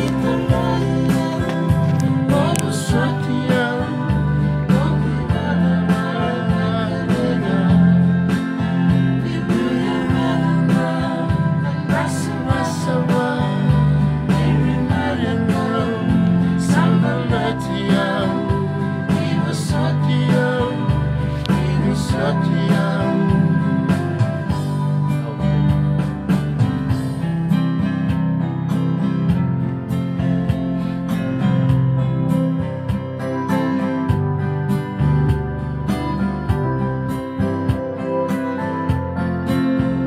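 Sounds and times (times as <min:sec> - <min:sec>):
person singing: 0:00.0 - 0:24.6
electronic keyboard: 0:00.0 - 0:40.0
strummed acoustic guitar: 0:00.0 - 0:40.0.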